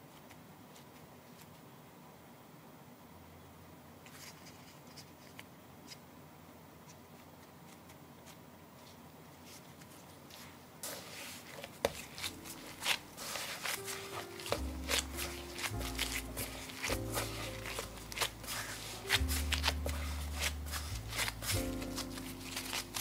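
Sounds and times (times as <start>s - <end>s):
gloved hands working dough: 6.9s - 23.0s
soft background music: 11.9s - 23.0s.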